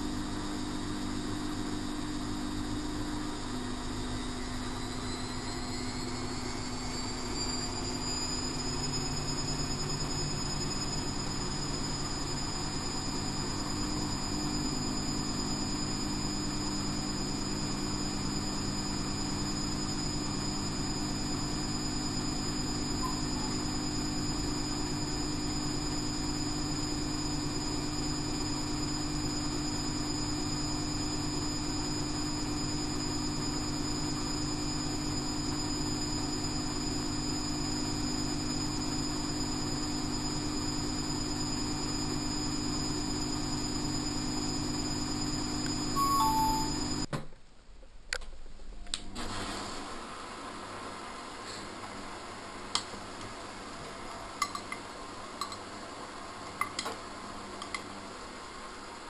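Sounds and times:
washing machine motor whine: 0.0 - 47.1.

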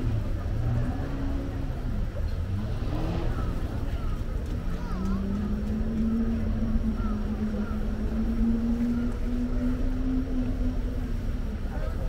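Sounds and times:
low rumble of traffic: 0.0 - 12.0
vehicle engine humming: 0.0 - 12.0.

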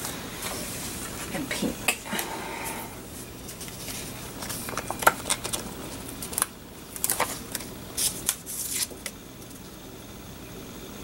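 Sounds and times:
paper rustling: 7.0 - 9.0.

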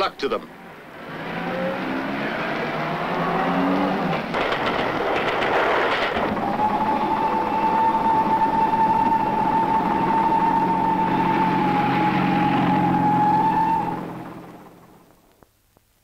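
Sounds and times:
train running rumble: 4.0 - 15.1
train whistle: 6.2 - 14.2.

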